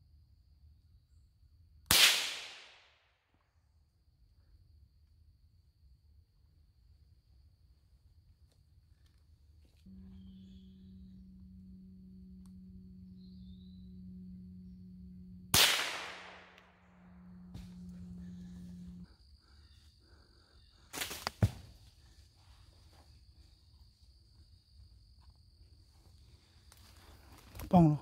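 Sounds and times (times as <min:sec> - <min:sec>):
gunshot echoing: 0:15.5 - 0:16.8.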